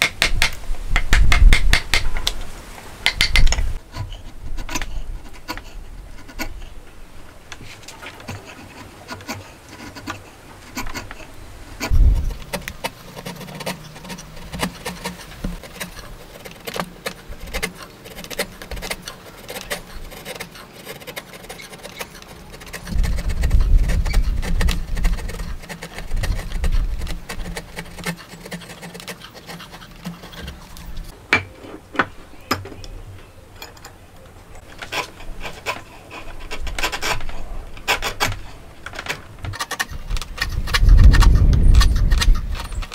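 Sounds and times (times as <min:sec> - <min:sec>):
chisel scraping wood: 0:00.0 - 0:32.9, 0:34.6 - 0:42.9
dull low knocks: 0:11.8 - 0:12.8.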